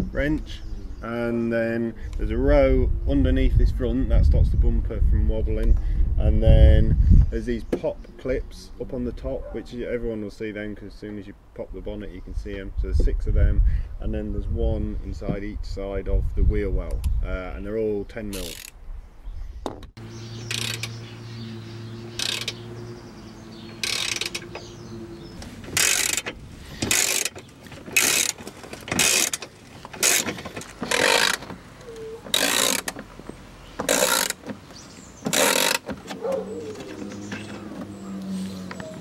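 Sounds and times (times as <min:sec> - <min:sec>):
socket ratchet clicking: 0:20.5 - 0:21.0, 0:22.2 - 0:22.6, 0:23.8 - 0:24.7, 0:25.8 - 0:33.0, 0:33.8 - 0:34.5, 0:35.3 - 0:36.0.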